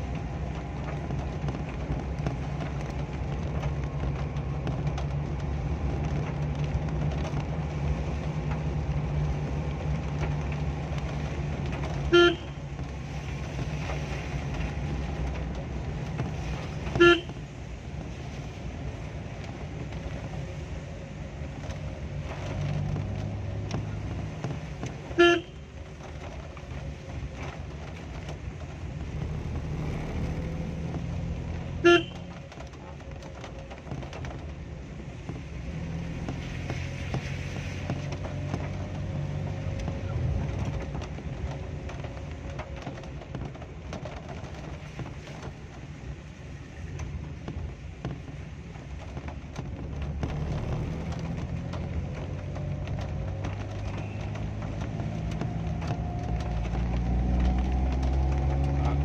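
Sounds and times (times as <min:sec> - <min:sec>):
moving vehicle hum: 0:00.0 - 0:59.0
vehicle horn toots: 0:12.1 - 0:12.6, 0:17.0 - 0:17.4, 0:25.2 - 0:25.6, 0:31.8 - 0:32.3.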